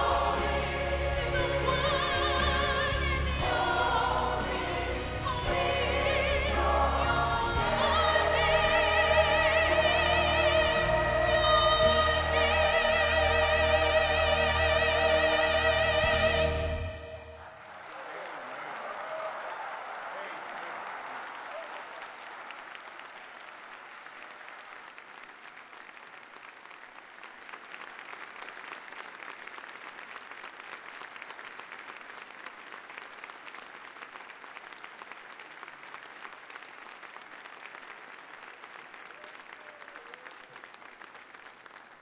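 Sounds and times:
crowd applauding: 0.0s - 42.0s.

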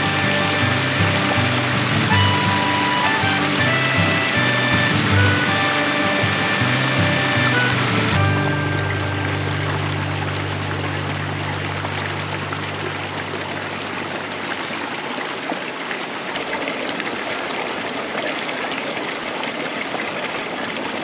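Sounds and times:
low held tone: 0.0s - 13.9s
creek water running over rocks: 0.0s - 21.0s.

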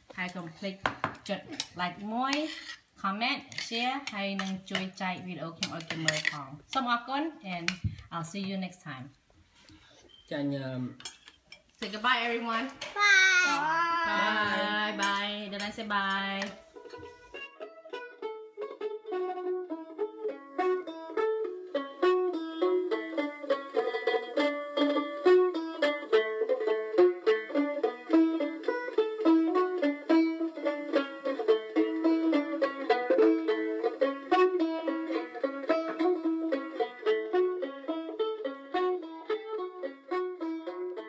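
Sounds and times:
plucked string instrument music: 13.0s - 41.0s.

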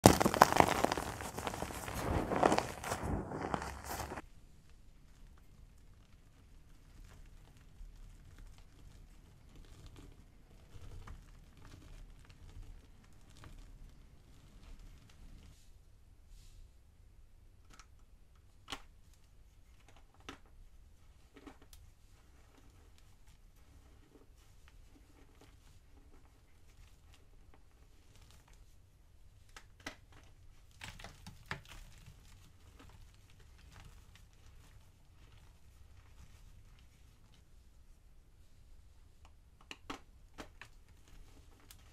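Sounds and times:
chalk crunching between hands: 0.0s - 4.2s.

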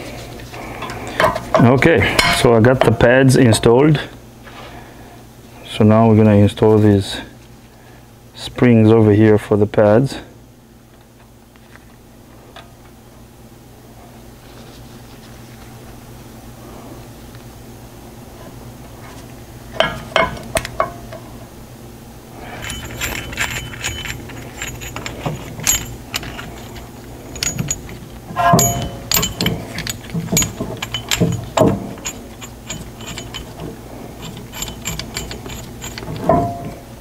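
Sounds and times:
steady low hum: 0.0s - 37.0s
metal parts clinking: 22.5s - 36.8s.

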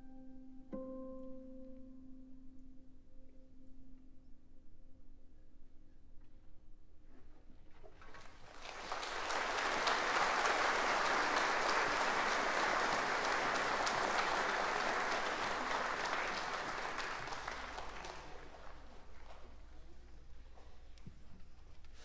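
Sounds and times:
audience applauding: 8.0s - 19.7s.

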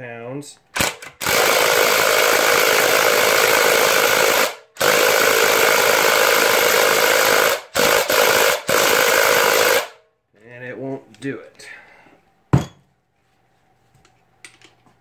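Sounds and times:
impact wrench hammering: 0.8s - 10.0s.

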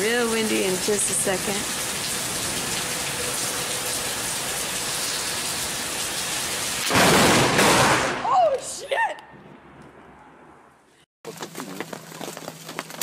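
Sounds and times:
heavy rain pouring: 0.0s - 7.3s.

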